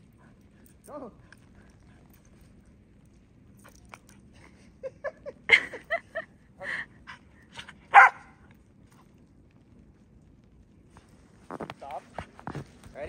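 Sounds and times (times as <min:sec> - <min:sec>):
puppy barking and yipping: 0:07.9 - 0:08.3.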